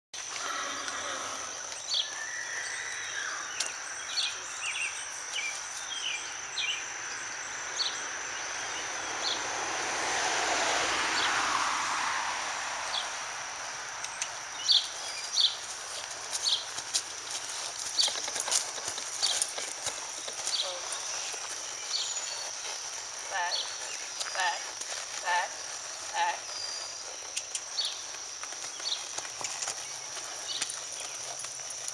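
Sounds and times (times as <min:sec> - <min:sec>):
high insect drone: 0:00.2 - 0:31.9
broad swell of noise: 0:08.6 - 0:14.0
bird chirps: 0:19.2 - 0:24.4.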